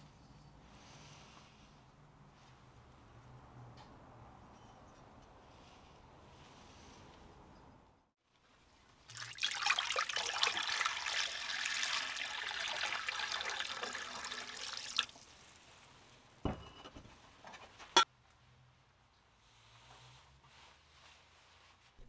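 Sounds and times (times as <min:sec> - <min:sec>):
liquid pouring and splashing: 0:09.1 - 0:16.0.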